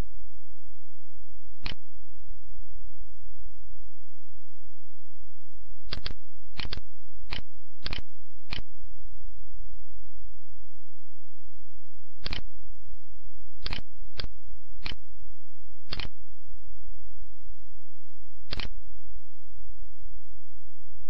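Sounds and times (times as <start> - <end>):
steady low hum: 0.0 - 21.0
computer mouse clicking: 1.6 - 1.8, 5.9 - 8.7, 12.2 - 12.5, 13.6 - 15.0, 15.9 - 16.2, 18.5 - 18.8.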